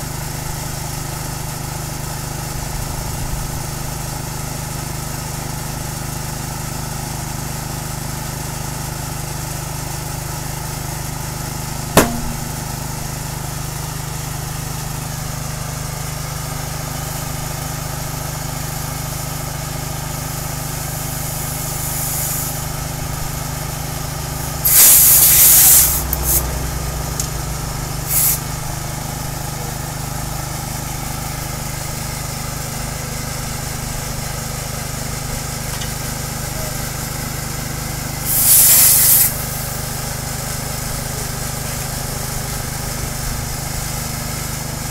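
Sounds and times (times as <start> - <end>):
air hissing from hose: 12.0 - 12.7, 20.8 - 23.1, 24.4 - 26.6, 27.9 - 28.4, 38.2 - 39.8
sharp crack: 12.0 - 12.8
small petrol engine running: 14.3 - 44.9.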